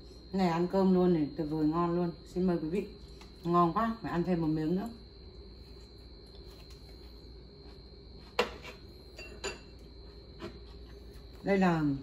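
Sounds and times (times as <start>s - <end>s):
porcelain bowl clink: 9.1s - 9.8s.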